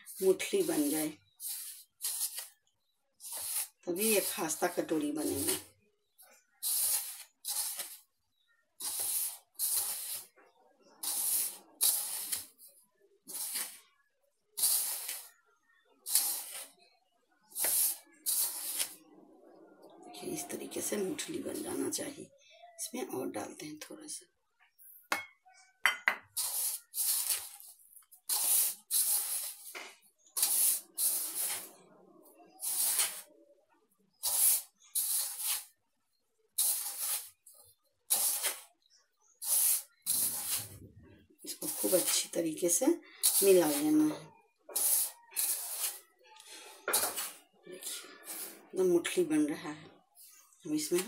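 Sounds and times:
hand rubbing flour in plastic bowl: 0.0s - 2.5s, 3.2s - 5.6s, 6.6s - 8.1s, 8.8s - 12.7s, 13.3s - 13.9s, 16.1s - 16.8s, 17.6s - 19.0s, 28.3s - 29.7s, 30.4s - 31.8s, 32.4s - 33.3s, 34.2s - 35.8s, 36.6s - 37.5s, 39.4s - 40.9s, 41.5s - 44.0s, 44.7s - 46.1s.

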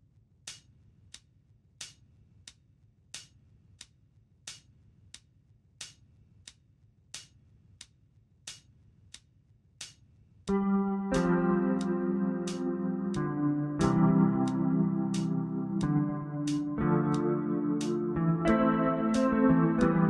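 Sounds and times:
metronome clicking: 10.5s - 19.9s.

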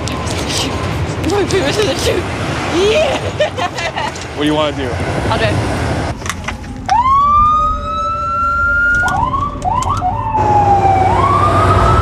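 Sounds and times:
ambulance siren wailing: 6.3s - 12.0s.

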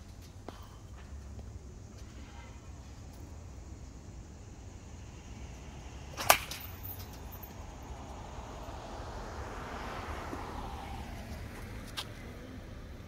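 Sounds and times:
bat striking baseball: 6.1s - 7.0s.

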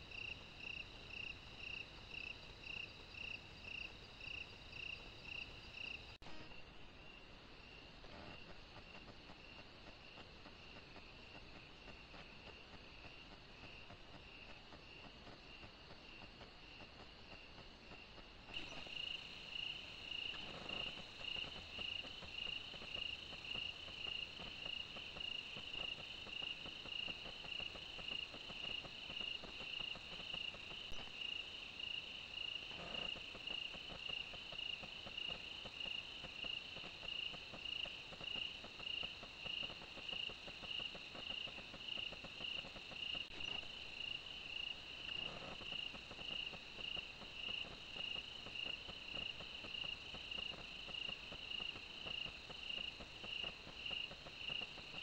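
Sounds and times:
high insect hum: 0.0s - 6.2s, 18.6s - 55.0s
crickets chirping: 0.0s - 7.9s, 18.5s - 55.0s.

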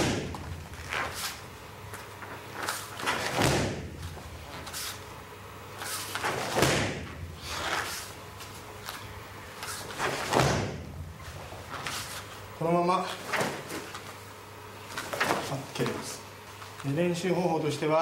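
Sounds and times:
kicks thumping punching mitt: 0.0s - 0.6s, 3.1s - 4.1s, 6.3s - 7.3s, 10.1s - 11.1s.

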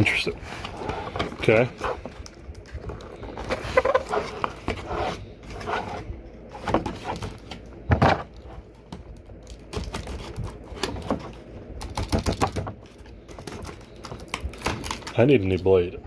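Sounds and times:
cardboard rustling: 0.0s - 8.8s
knife cutting cardboard: 3.4s - 6.1s.

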